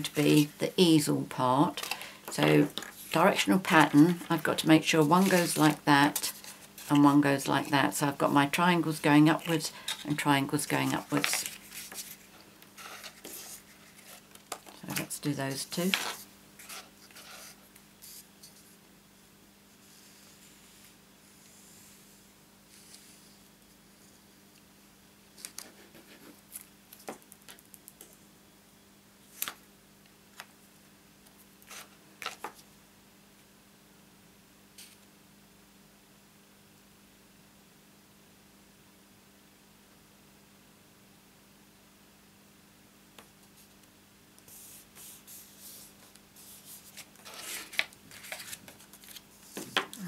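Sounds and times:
faint steady hum: 0.0s - 50.0s
paper rustling and sliding: 1.8s - 7.2s, 9.4s - 14.7s, 44.5s - 50.0s.

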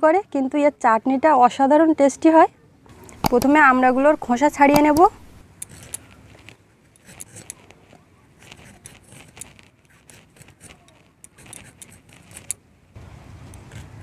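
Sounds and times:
blade scraping fruit peel: 3.0s - 12.6s, 13.6s - 14.0s.

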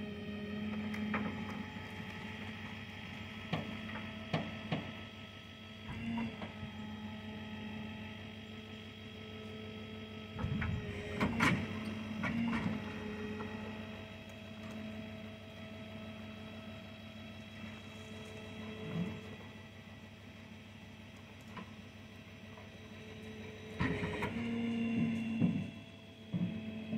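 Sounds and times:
hydraulic machine hum: 0.0s - 26.9s
shed knocking and clunking: 0.8s - 5.1s, 23.7s - 26.9s.

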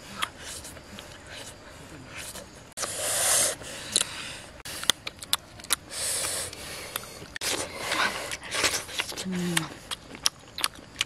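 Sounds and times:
hissing rushes of noise: 2.8s - 4.3s
mouth clicks and smacks eating: 3.9s - 11.0s.

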